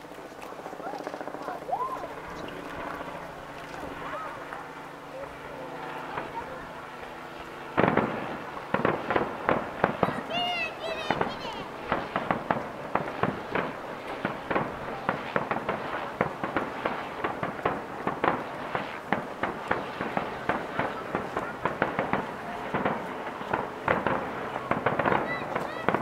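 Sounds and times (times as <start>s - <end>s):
firework shells bursting: 7.8s - 26.0s.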